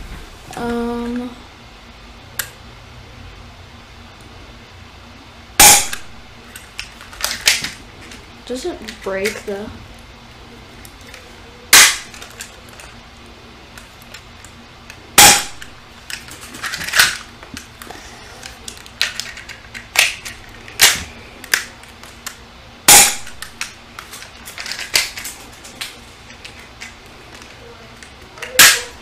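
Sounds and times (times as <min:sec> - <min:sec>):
airsoft pistol shots: 0:05.6 - 0:06.0, 0:11.7 - 0:12.1, 0:15.2 - 0:15.7, 0:22.9 - 0:23.4.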